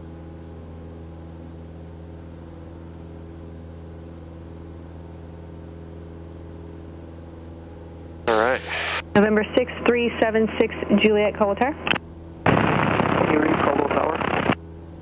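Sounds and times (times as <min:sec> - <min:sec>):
thin high whine: 0:08.3 - 0:09.6
airplane piston engine droning: 0:08.3 - 0:15.0.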